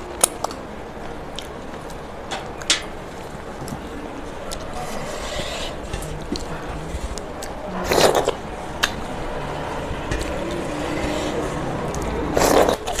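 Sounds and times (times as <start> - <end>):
loud slurps: 10.3 - 13.0.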